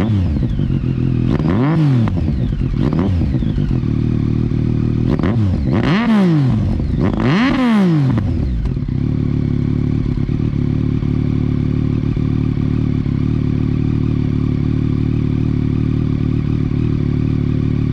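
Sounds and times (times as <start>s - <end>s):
motorcycle engine revving and idling: 0.0s - 17.9s.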